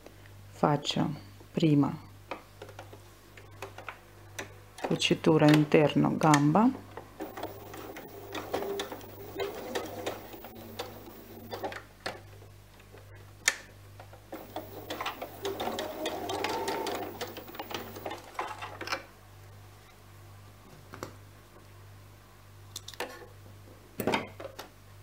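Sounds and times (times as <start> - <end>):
sewing machine stitching: 7.2 - 11.8, 14.4 - 18.2.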